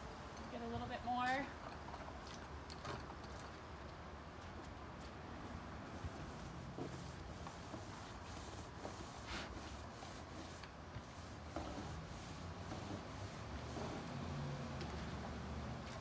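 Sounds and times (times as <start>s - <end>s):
paint roller swishing on wood: 5.0s - 16.0s.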